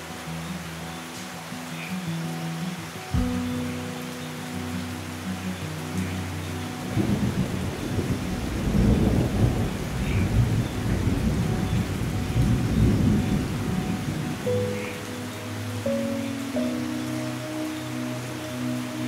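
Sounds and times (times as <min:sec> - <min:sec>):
steady rain: 0:00.0 - 0:19.0
rolling thunder: 0:07.0 - 0:14.3.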